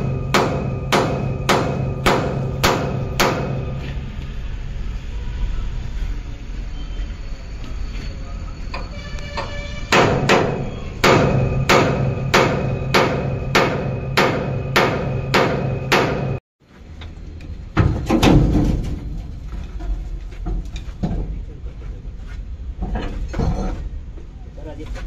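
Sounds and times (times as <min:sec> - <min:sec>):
hammer striking metal ringing: 0:00.0 - 0:03.9, 0:08.7 - 0:16.4.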